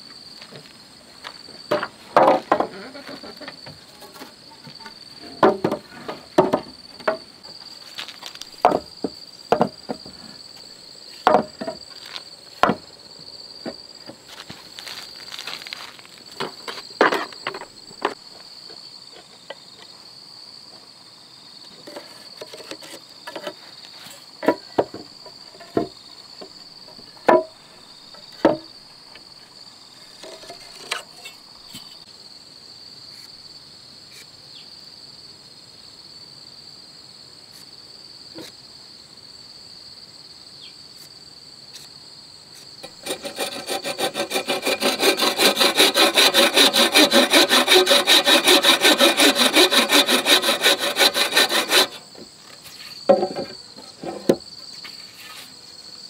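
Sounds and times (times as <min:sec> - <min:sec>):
insects chirring: 0:00.0 - 0:56.0
wooden boards clacking: 0:01.7 - 0:02.8, 0:03.6 - 0:07.2, 0:08.6 - 0:10.2, 0:11.2 - 0:11.8, 0:27.2 - 0:27.5, 0:53.1 - 0:54.4.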